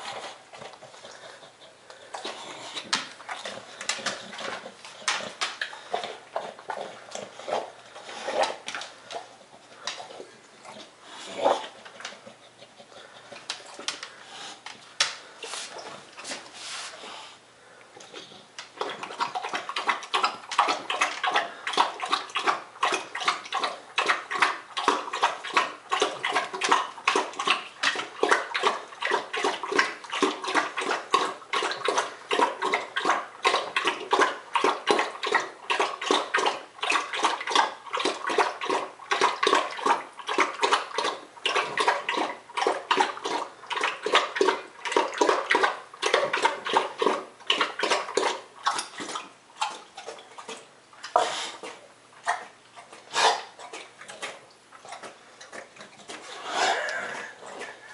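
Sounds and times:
dog eating wet chomping: 0.0s - 16.4s, 18.0s - 57.9s.

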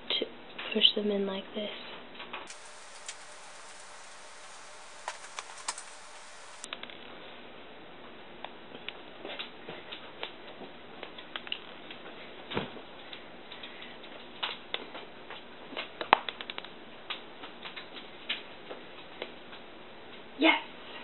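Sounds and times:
sprinkles clicking and pattering: 2.5s - 6.7s.

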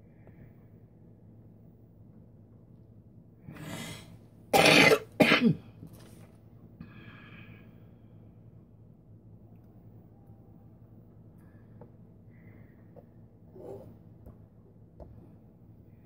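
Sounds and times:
woman coughing: 4.6s - 5.7s.

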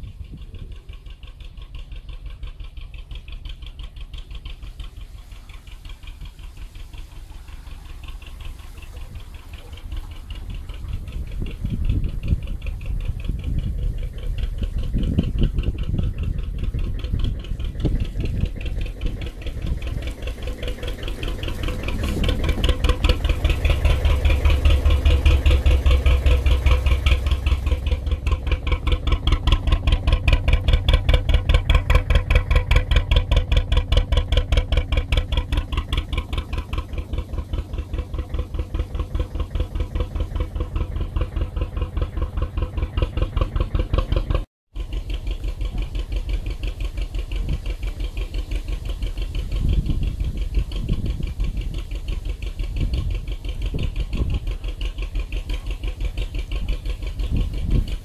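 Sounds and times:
diesel engine chugging: 0.0s - 58.0s.

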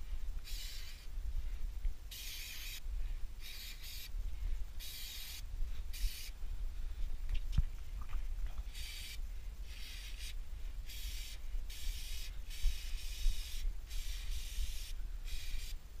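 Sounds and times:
aerosol spray hissing: 0.4s - 1.1s, 2.1s - 2.8s, 3.4s - 4.1s, 4.8s - 6.4s, 8.6s - 16.0s.

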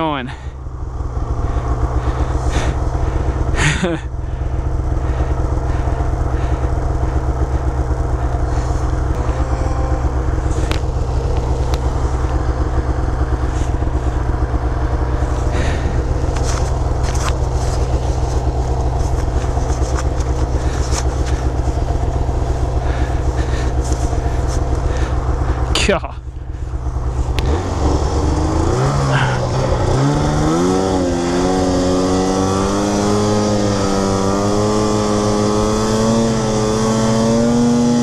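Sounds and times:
snowmobile engine idling: 0.0s - 38.0s.

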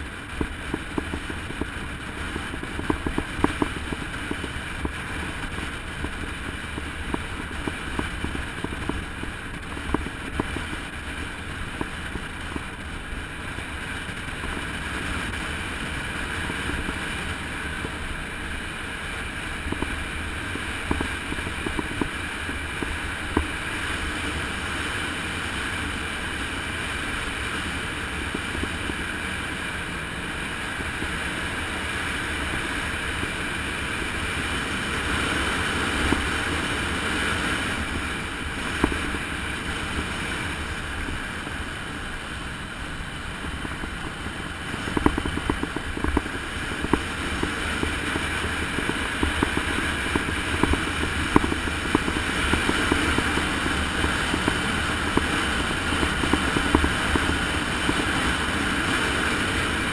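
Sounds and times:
wind buffeting microphone: 0.0s - 59.9s
knocks from road bumps: 44.8s - 55.4s.

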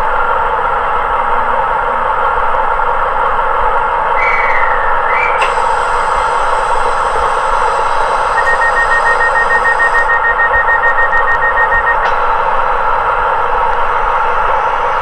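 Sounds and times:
rapid steady beeping: 5.7s - 12.1s.

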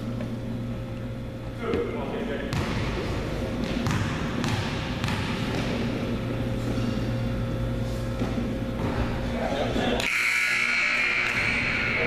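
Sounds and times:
murmur of gymnasium crowd: 0.0s - 12.0s
steady hum: 0.0s - 12.0s
basketball bouncing on hardwood floor: 3.6s - 5.8s.

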